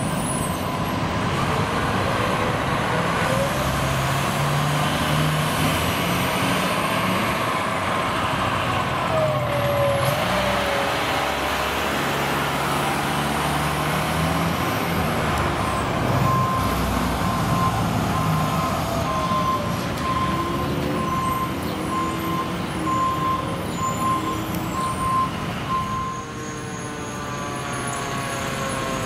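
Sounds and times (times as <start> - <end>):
diesel engine idling: 14.6 - 26.2.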